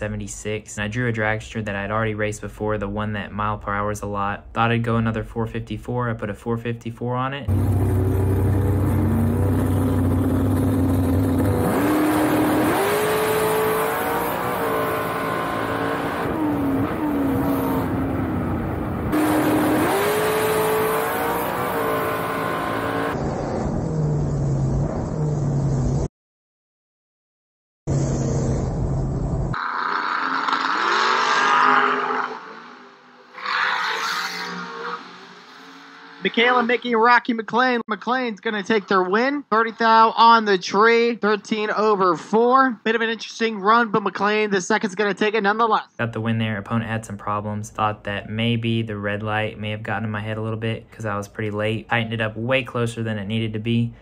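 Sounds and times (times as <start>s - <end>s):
dragster engine at full throttle: 7.5s - 24.2s, 29.6s - 32.4s
drag racing cars from trackside: 7.5s - 26.1s, 27.9s - 36.8s.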